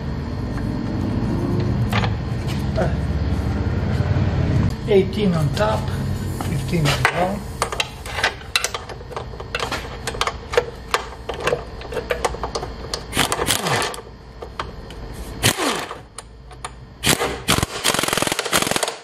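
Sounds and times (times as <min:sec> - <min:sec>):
metal tools clinking: 0:06.8 - 0:10.3
impact wrench bursts: 0:13.1 - 0:14.1, 0:15.4 - 0:16.2, 0:17.0 - 0:19.0.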